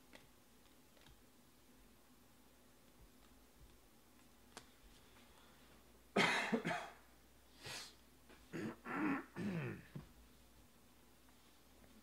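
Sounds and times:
man clearing throat: 0:06.2 - 0:07.0, 0:08.5 - 0:10.0
man coughing: 0:06.2 - 0:07.0, 0:08.5 - 0:10.0.

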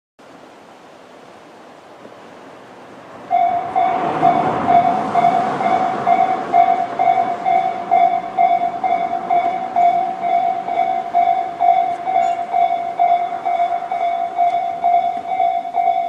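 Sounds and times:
rushing noise: 0:00.2 - 0:16.0
level crossing alarm ringing: 0:03.3 - 0:16.0.

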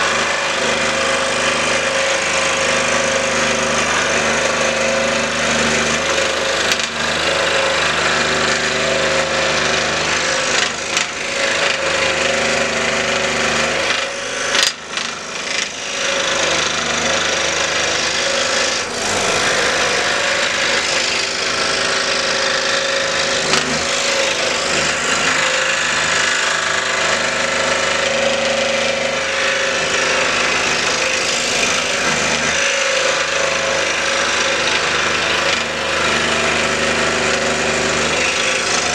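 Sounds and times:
scroll saw cutting wood: 0:00.0 - 0:38.9.

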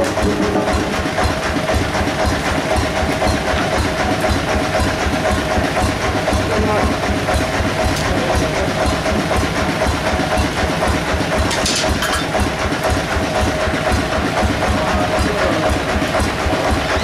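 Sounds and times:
bandsaw mill running: 0:00.0 - 0:17.0.

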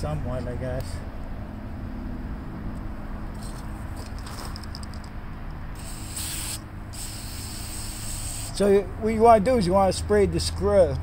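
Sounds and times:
aerosol can hissing: 0:05.8 - 0:08.6.

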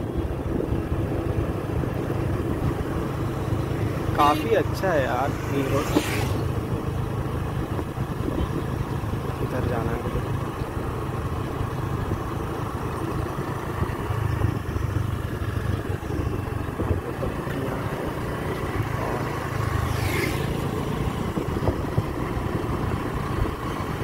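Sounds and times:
motorbike engine running: 0:00.0 - 0:24.0
wind and road noise: 0:00.0 - 0:24.0.

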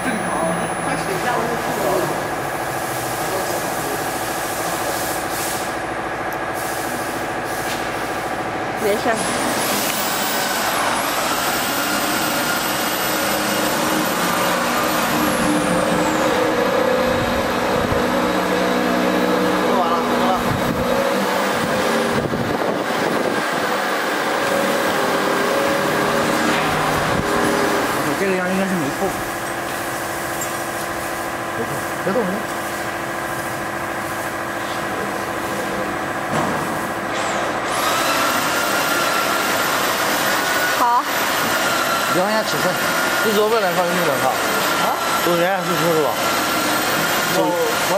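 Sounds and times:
router machine running: 0:08.1 - 0:36.3, 0:37.0 - 0:47.9
high-pitched whine: 0:08.8 - 0:30.9.

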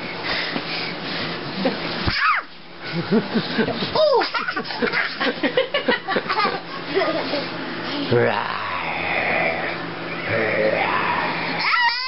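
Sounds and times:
small child squealing and giggling: 0:02.1 - 0:02.5, 0:11.5 - 0:12.0.

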